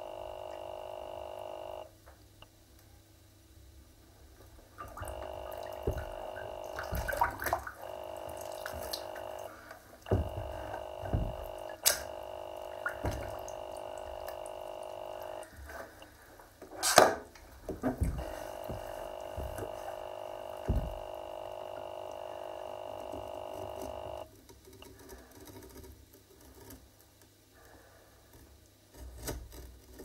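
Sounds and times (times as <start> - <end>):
tap running into tub: 4.8 - 9.5, 10.1 - 15.5, 17.7 - 24.2
feet splashing in bathtub water: 4.8 - 15.5, 17.4 - 23.3.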